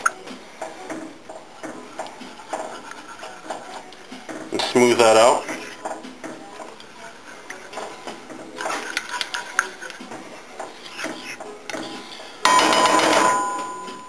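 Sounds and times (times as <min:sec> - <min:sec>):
loud ringing tone: 0:12.5 - 0:14.0.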